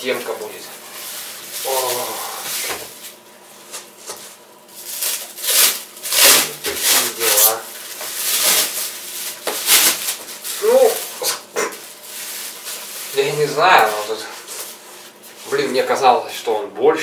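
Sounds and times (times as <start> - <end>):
plastic wrap crinkling: 0.3 - 16.0.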